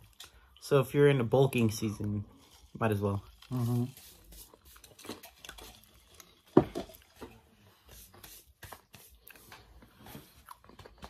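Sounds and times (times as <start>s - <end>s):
person chewing food: 0.0s - 0.6s, 2.0s - 8.1s, 9.0s - 11.0s
clicks and rustles of food: 1.4s - 7.5s, 8.5s - 11.0s.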